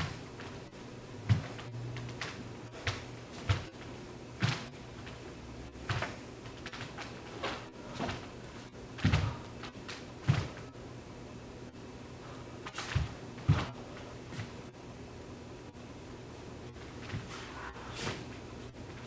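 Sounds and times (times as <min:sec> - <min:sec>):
bare feet stamping on wood floor: 0:00.0 - 0:05.2, 0:05.8 - 0:08.3, 0:09.0 - 0:10.7, 0:12.9 - 0:14.5.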